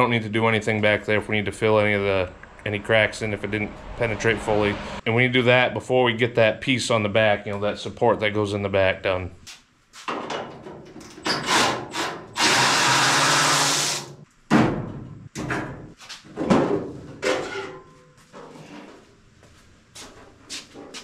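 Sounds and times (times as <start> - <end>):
power drill running: 11.5 - 14.2.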